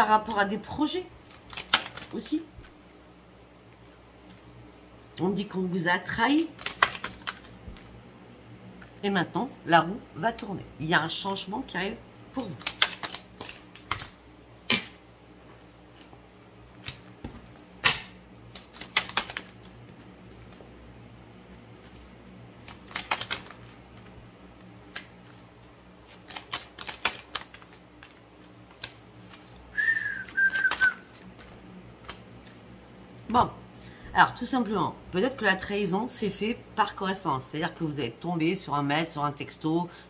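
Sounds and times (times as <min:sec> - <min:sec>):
cards being shuffled: 0:01.2 - 0:02.8, 0:06.3 - 0:07.9, 0:12.4 - 0:14.9, 0:16.8 - 0:20.7, 0:21.8 - 0:33.4
short whistle-like tone: 0:29.7 - 0:31.1.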